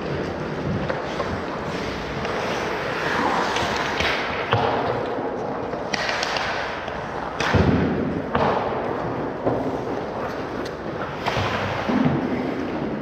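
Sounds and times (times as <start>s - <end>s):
ice rink noise: 0.0s - 13.0s
sharp hockey stick clacks: 3.4s - 9.7s.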